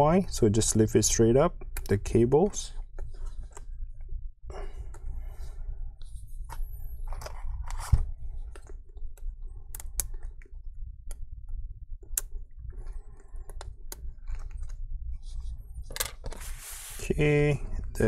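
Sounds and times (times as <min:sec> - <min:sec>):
small connector clicks: 0:09.2 - 0:10.3.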